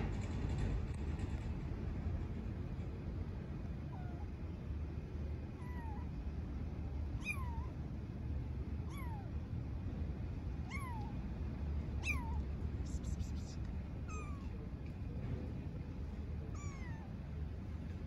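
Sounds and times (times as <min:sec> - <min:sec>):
steady low rumble: 0:00.0 - 0:18.0
kitten meowing: 0:05.6 - 0:06.1, 0:07.2 - 0:07.7, 0:08.9 - 0:09.3, 0:10.6 - 0:11.2, 0:12.0 - 0:14.6, 0:16.5 - 0:17.1.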